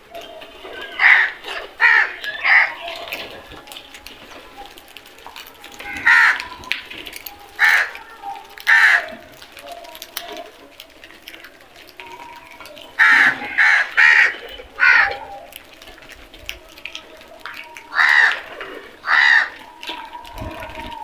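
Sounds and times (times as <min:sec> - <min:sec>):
crows cawing: 0:00.7 - 0:03.2, 0:05.6 - 0:06.8, 0:07.5 - 0:09.4, 0:12.2 - 0:15.6, 0:17.5 - 0:20.3.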